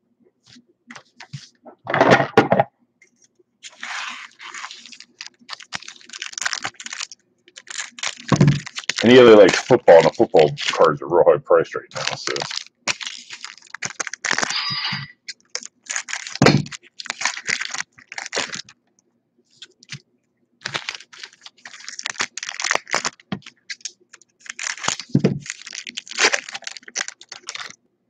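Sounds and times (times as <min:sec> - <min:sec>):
wrapper crinkling: 0:03.6 - 0:11.0, 0:11.9 - 0:18.8, 0:19.5 - 0:20.0, 0:20.6 - 0:27.8.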